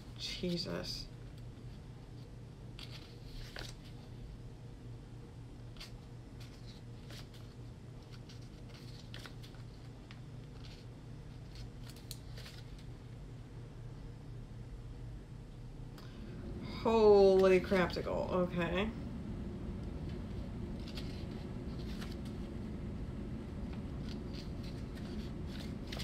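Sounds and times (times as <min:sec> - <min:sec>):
steady low hum: 0:00.0 - 0:26.0
paper pages rustling: 0:01.6 - 0:04.2, 0:05.7 - 0:13.0, 0:20.4 - 0:22.5, 0:23.7 - 0:26.0.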